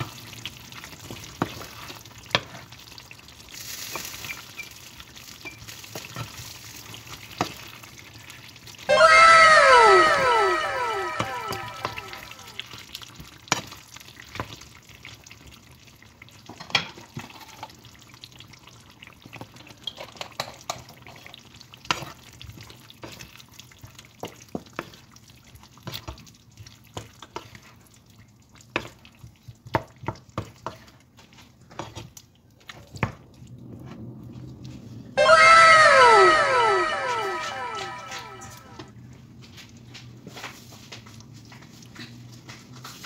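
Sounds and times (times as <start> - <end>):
falling electronic tones: 8.9 - 12.6, 35.2 - 38.8.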